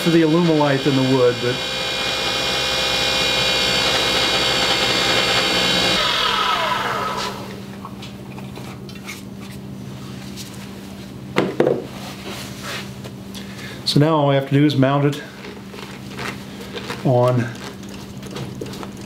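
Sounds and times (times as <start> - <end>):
wood lathe whine: 0.0 - 7.6.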